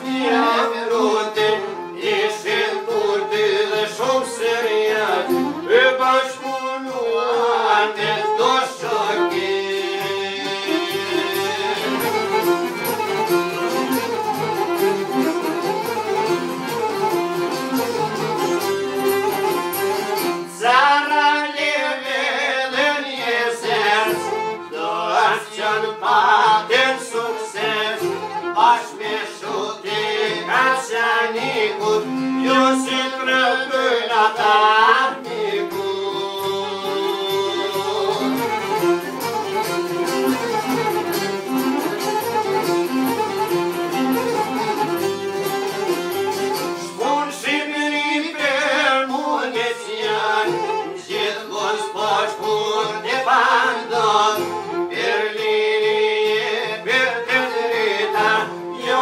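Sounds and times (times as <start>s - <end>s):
person singing: 0.0s - 12.9s, 20.4s - 39.4s, 46.7s - 59.0s
violin and other instruments: 0.0s - 59.0s.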